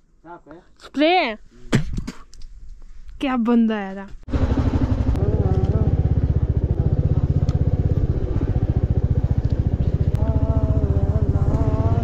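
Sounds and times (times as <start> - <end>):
motorcycle engine at low revs: 4.3 - 12.0.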